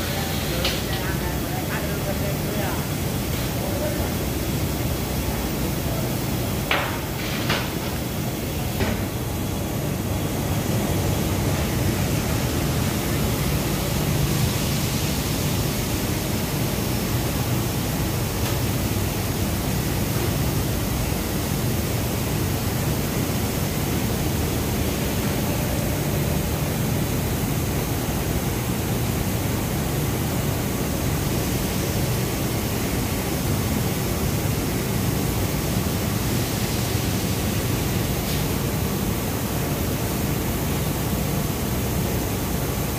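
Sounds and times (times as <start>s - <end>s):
machinery hiss: 0.0s - 42.9s.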